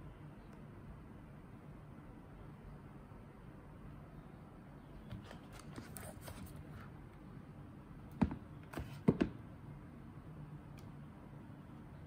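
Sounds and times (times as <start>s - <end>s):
hard objects knocking on table: 9.0s - 9.4s.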